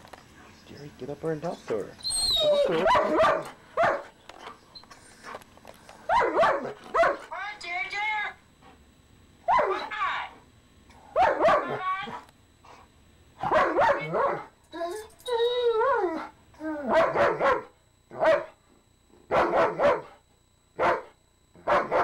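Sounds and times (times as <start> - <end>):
dog yowling and moaning: 2.0 - 3.5, 13.7 - 17.6.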